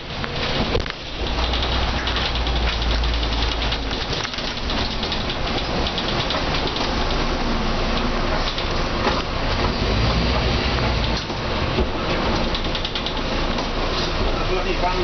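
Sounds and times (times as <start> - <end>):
bus engine rumbling: 0.0 - 15.0
rain: 0.0 - 15.0
tyres hissing on wet road: 6.7 - 12.6.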